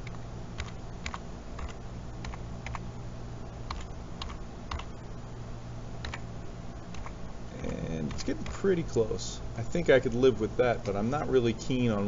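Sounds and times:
keyboard keys clicking: 0:00.0 - 0:02.8, 0:03.7 - 0:04.9, 0:06.0 - 0:06.2, 0:06.9 - 0:07.2
steady low hum: 0:00.0 - 0:12.0.

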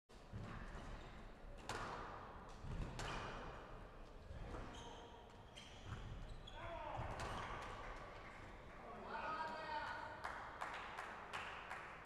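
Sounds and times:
court shoes squeaking: 0:04.7 - 0:06.6.

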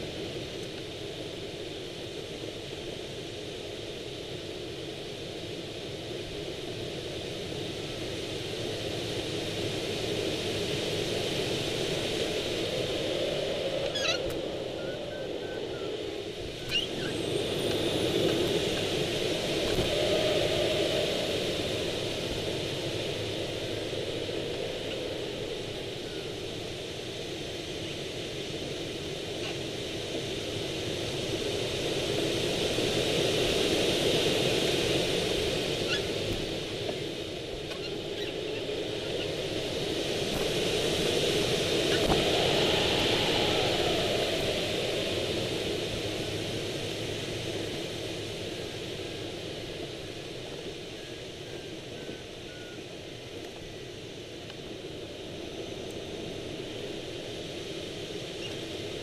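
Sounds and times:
wind rushing past glider: 0:00.0 - 0:59.0.

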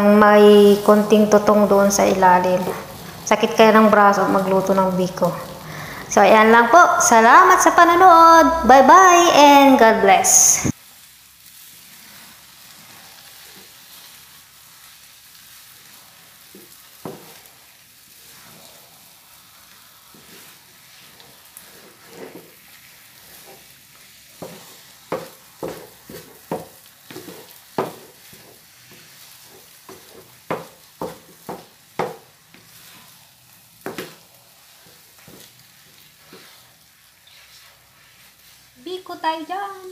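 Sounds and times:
faint sizzle: 0:00.0 - 0:39.9
spatula scraping a pan: 0:11.5 - 0:39.9.

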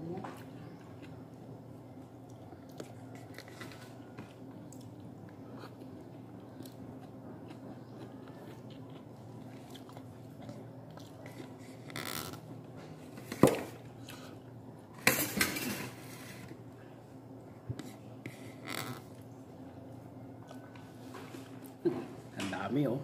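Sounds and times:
eating sounds: 0:00.0 - 0:13.0
steady low hum: 0:00.0 - 0:23.0.

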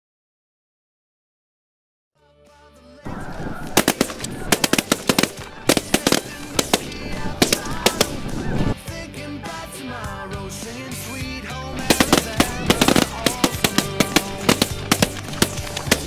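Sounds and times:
geese honking: 0:03.1 - 0:08.8, 0:11.8 - 0:16.0
shotgun shots: 0:03.1 - 0:08.8, 0:11.8 - 0:16.0.

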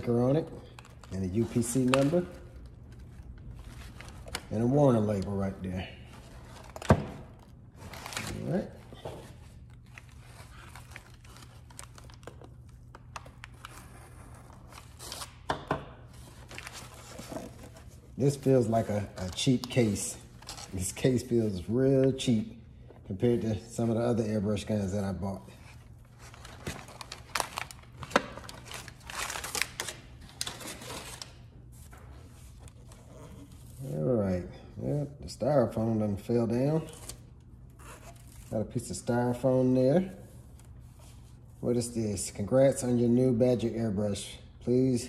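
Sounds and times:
wrapping paper crinkling: 0:00.6 - 0:15.4, 0:25.8 - 0:31.4.

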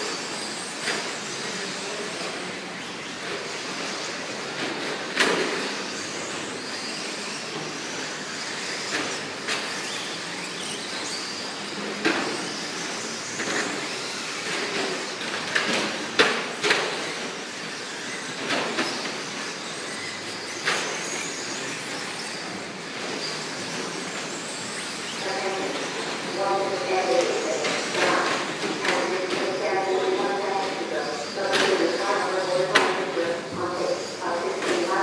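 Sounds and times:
rc truck motors whirring: 0:00.0 - 0:26.3.

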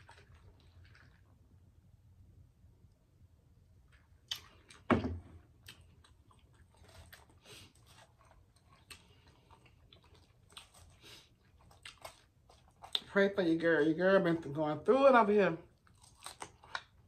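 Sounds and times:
chewing and mouth sounds: 0:00.0 - 0:01.3, 0:05.5 - 0:13.2.

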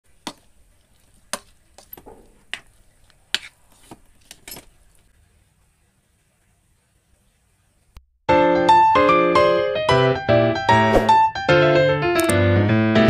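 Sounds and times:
rice paddle scraping pot: 0:00.2 - 0:04.4.

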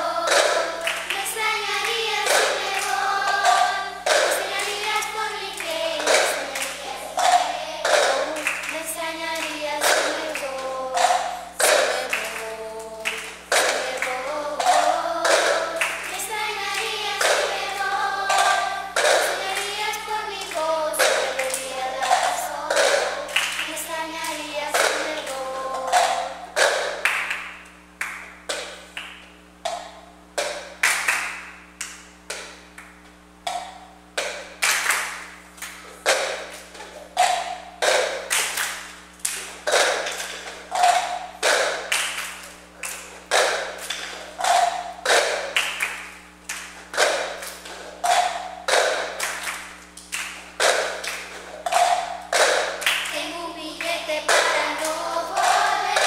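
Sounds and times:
children clapping: 0:00.0 - 0:29.8, 0:30.4 - 0:32.9, 0:34.2 - 0:56.0
plastic cups tapping on tile: 0:06.0 - 0:08.7, 0:18.3 - 0:19.7.

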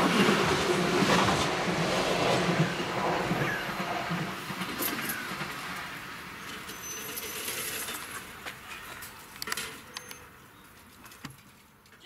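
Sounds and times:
train moving off: 0:00.0 - 0:09.2.

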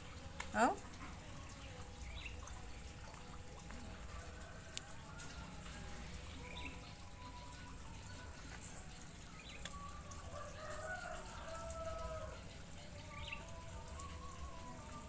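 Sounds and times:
rooster crowing: 0:10.2 - 0:12.5.

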